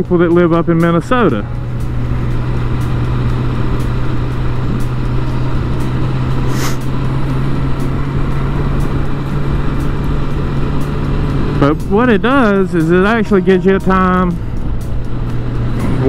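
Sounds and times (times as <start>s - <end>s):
motorcycle engine droning: 0.0s - 16.0s
wind and road noise: 0.0s - 16.0s
brief high hiss: 6.5s - 6.9s.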